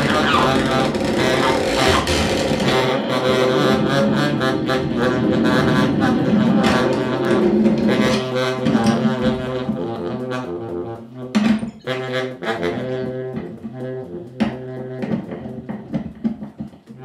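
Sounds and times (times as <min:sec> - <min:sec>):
electronic and turntable sounds: 0:00.0 - 0:11.2
baritone saxophone low notes: 0:00.0 - 0:17.0.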